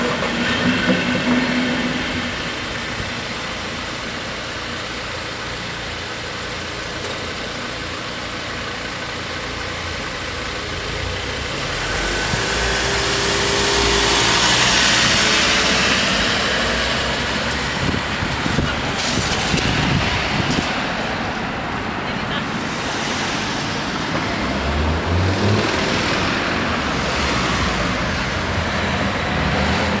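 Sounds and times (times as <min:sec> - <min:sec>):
cars passing close by: 0:10.0 - 0:30.0.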